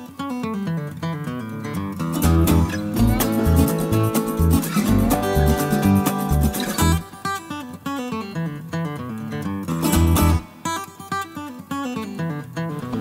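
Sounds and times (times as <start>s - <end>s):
acoustic guitar melody: 0.0s - 13.0s
deep bass notes: 2.3s - 7.0s.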